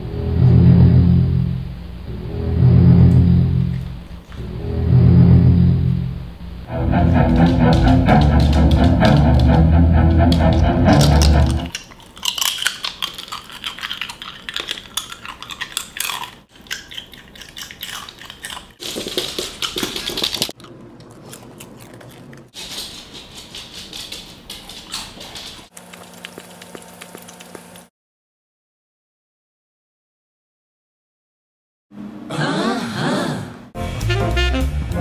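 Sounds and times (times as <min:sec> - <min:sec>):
low steady hum: 0:00.0 - 0:11.7
rock music with guitar and drums: 0:06.7 - 0:11.7
claws clicking on hard floor: 0:18.5 - 0:20.6, 0:22.0 - 0:27.8.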